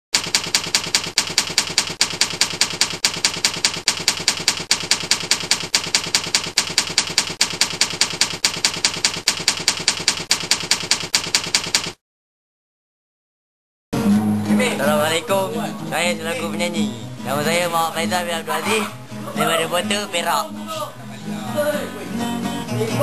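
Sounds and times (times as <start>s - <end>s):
rapid mechanical clicking: 0.2s - 12.0s.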